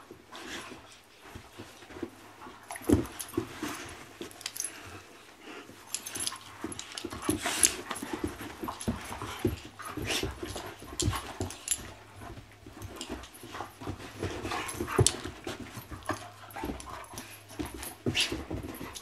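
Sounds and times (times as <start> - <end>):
dogs huffing and mouthing: 5.6 - 19.0
bodies scuffling on carpet: 6.1 - 19.0.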